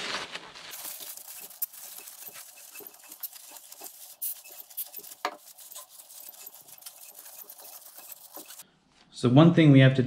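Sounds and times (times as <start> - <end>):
paper towel rubbing metal: 0.7 - 8.6.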